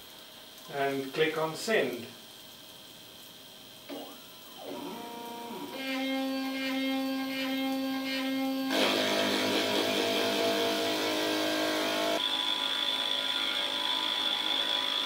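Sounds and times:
stepper motors whining: 3.9s - 15.0s
loud rough machine noise: 4.6s - 15.0s.

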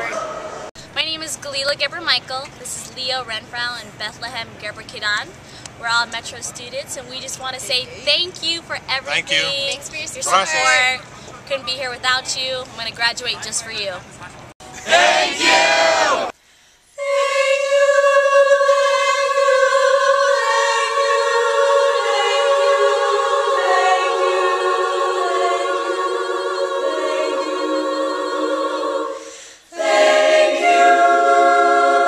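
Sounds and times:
choir singing a cappella: 0.0s - 0.7s, 9.1s - 11.0s, 14.7s - 16.3s, 17.0s - 32.0s.

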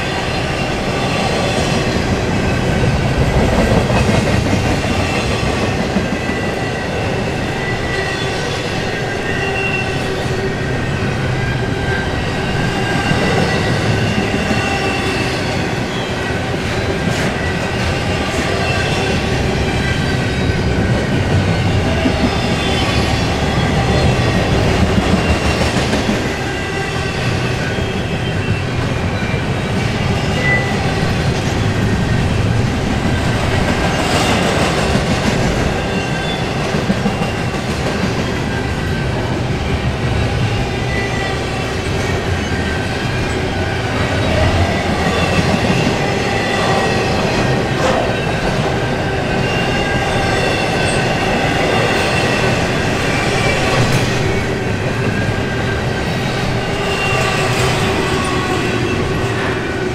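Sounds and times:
train wheels rumbling on rails: 0.0s - 59.9s.

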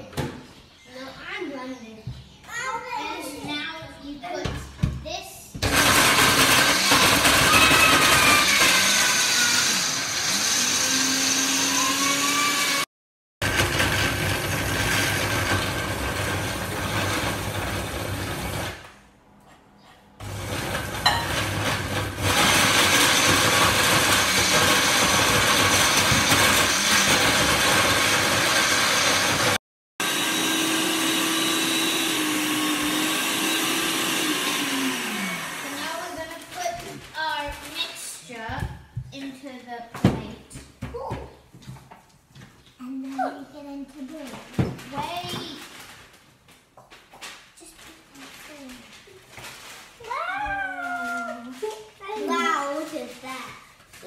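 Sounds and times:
blender grinding: 5.6s - 18.9s, 20.2s - 36.6s.

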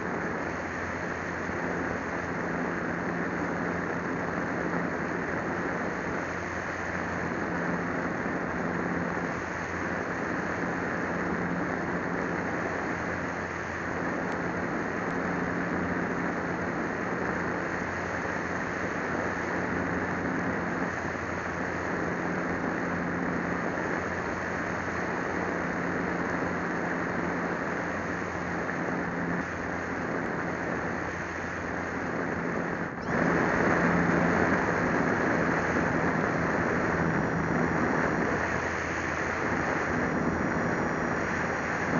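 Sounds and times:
model plane motor droning: 0.0s - 41.9s
wind rush: 22.0s - 41.9s.

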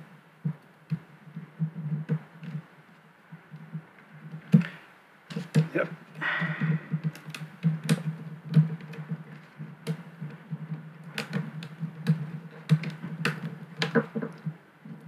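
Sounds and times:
calculator keys clicking: 7.0s - 10.2s, 10.9s - 14.5s.

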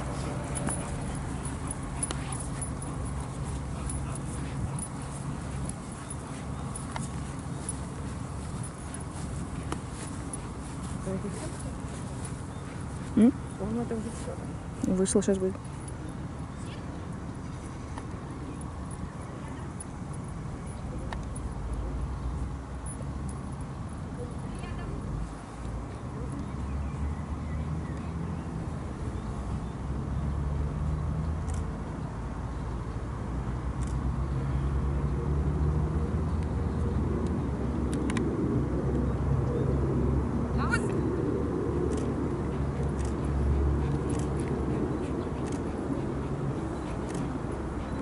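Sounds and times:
vehicle engine humming: 0.0s - 26.8s, 27.9s - 48.0s
low outdoor rumble: 0.0s - 27.0s, 36.7s - 48.0s.

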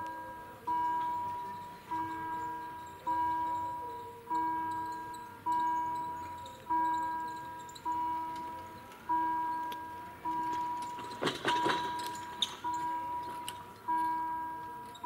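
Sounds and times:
level crossing warning bell: 0.0s - 15.0s
rattling clatter: 10.3s - 14.2s.

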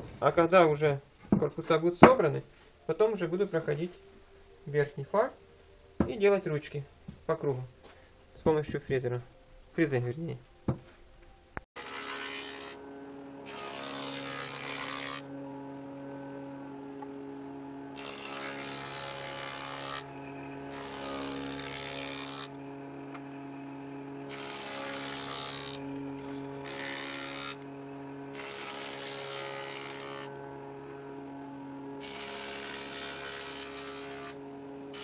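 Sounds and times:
circular saw cutting wood: 11.8s - 35.0s.

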